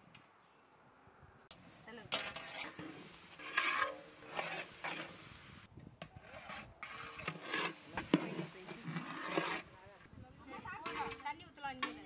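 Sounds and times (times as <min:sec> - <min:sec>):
ladle scraping in pot: 0:02.1 - 0:05.5, 0:06.1 - 0:09.8, 0:10.8 - 0:11.3.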